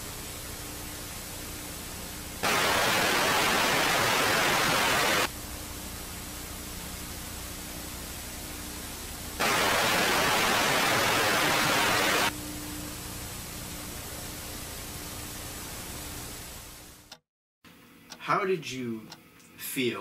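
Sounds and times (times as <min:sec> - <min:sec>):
static hiss: 0:00.0 - 0:17.1
loud burst of static: 0:02.4 - 0:05.3, 0:09.4 - 0:12.3.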